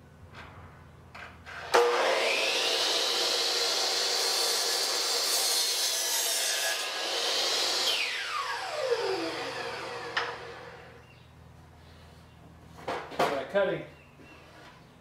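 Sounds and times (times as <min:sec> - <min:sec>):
saw blade cutting wood: 0:01.5 - 0:11.0
miter saw motor whine: 0:07.7 - 0:11.0.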